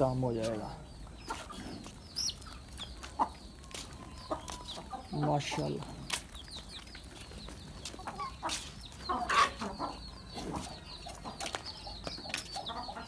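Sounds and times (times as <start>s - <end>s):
chickens clucking: 0.0s - 13.0s
chicks peeping: 0.0s - 13.0s.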